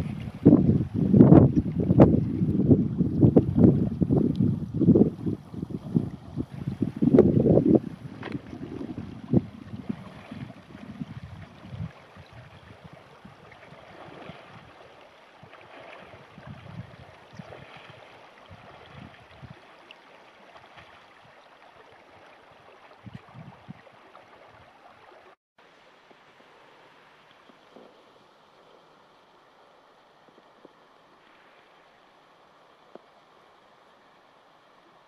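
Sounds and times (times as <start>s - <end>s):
wind buffeting microphone: 0.0s - 14.8s, 15.4s - 19.6s, 22.9s - 24.8s.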